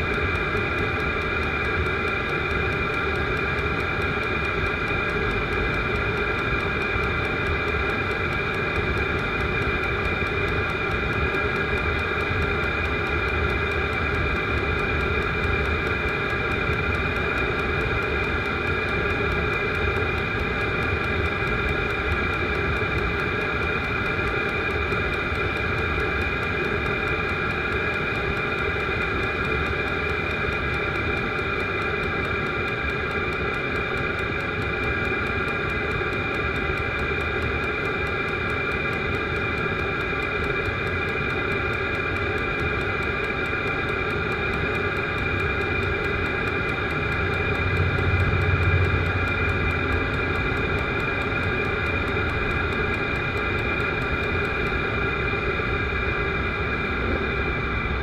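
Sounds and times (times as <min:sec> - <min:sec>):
blower fan whine: 0:00.0 - 0:58.0
combustion hum: 0:44.6 - 0:58.0.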